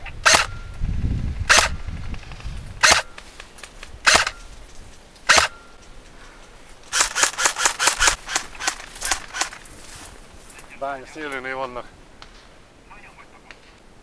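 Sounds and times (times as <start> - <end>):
airsoft rifle full-auto burst: 0.2 - 0.5, 1.5 - 1.8, 2.8 - 3.2, 4.0 - 4.4, 5.3 - 5.6, 6.9 - 9.6
airsoft rifle single shots: 0.3 - 0.6, 1.5 - 1.8, 2.8 - 3.2, 4.1 - 4.4, 5.3 - 5.6.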